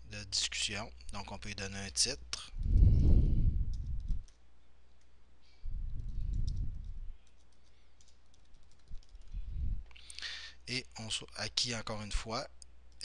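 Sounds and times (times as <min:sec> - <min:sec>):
low muffled rumble: 0:02.6 - 0:04.2, 0:09.3 - 0:09.9
computer keyboard typing: 0:03.7 - 0:05.1, 0:05.9 - 0:09.4.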